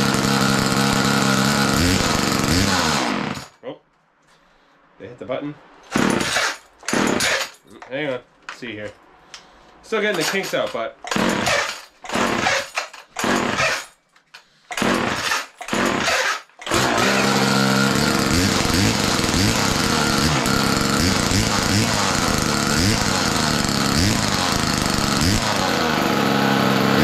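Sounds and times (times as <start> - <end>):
chainsaw engine running: 0.0 - 3.5, 11.1 - 13.9, 14.8 - 27.0
chainsaw starter cord pulls: 0.0 - 3.6, 5.9 - 7.7, 10.0 - 27.0.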